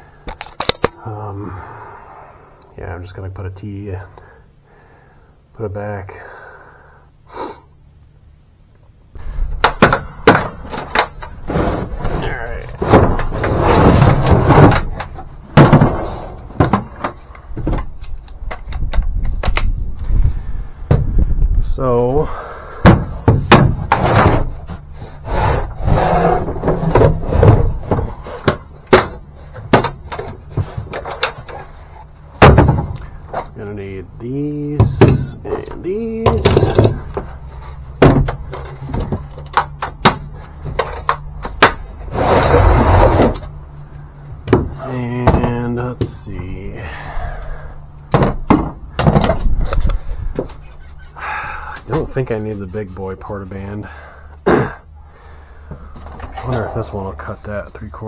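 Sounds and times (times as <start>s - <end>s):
steady low hum: 0.0s - 58.0s
case scraping across floor: 11.4s - 14.9s, 23.9s - 28.4s, 42.0s - 43.5s.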